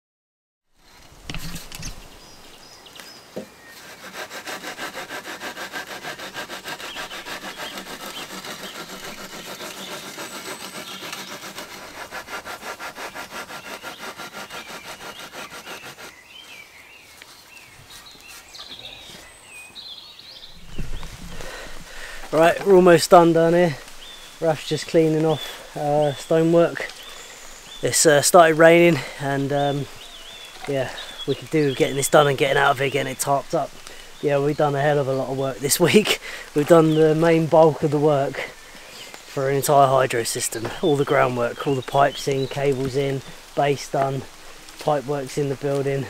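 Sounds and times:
level scraping wet concrete: 0:03.9 - 0:16.1.

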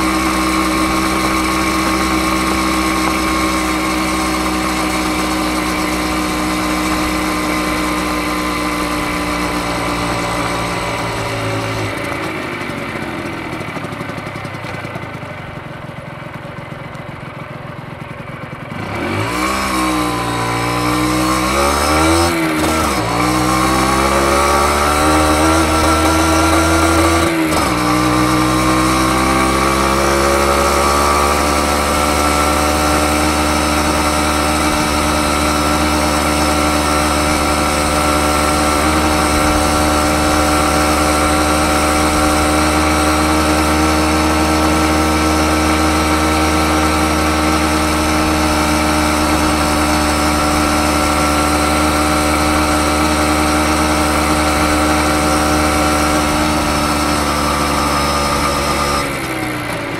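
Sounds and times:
two-stroke motorcycle engine: 0:00.0 - 0:59.9.

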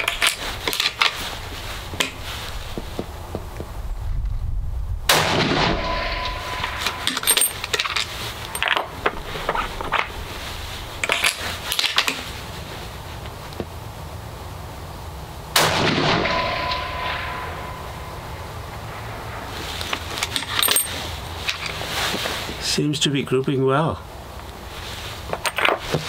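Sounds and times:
rifle shots with echo: 0:05.1 - 0:07.1, 0:15.6 - 0:19.1.

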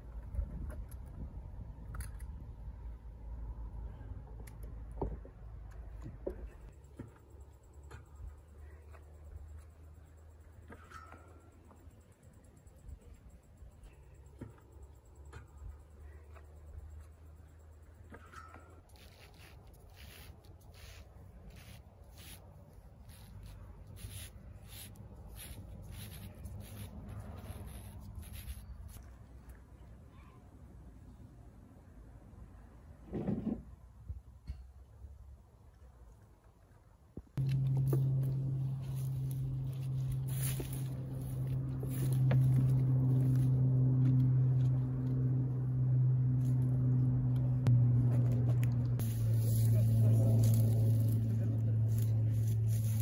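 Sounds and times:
low steady rumble: 0:00.0 - 0:30.1, 0:37.4 - 0:53.0
scraping strokes: 0:18.1 - 0:29.1, 0:49.0 - 0:53.0
low motor hum: 0:37.4 - 0:53.0.

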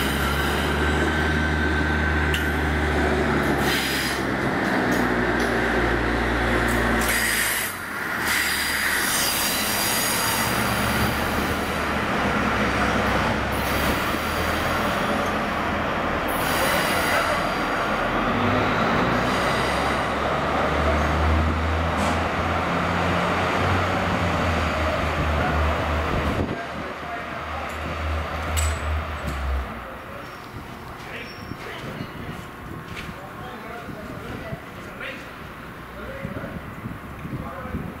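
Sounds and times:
low diesel engine drone: 0:00.0 - 0:38.0
wheel and rail noise: 0:00.0 - 0:38.0
high wheel squeal: 0:07.0 - 0:11.0, 0:31.1 - 0:32.2.

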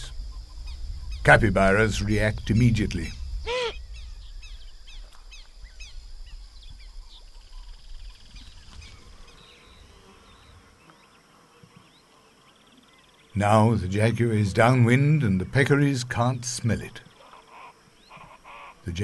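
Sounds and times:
low rumble: 0:00.0 - 0:08.0
fast insect trill: 0:00.0 - 0:13.4
animal call: 0:03.5 - 0:03.8, 0:17.2 - 0:18.9.

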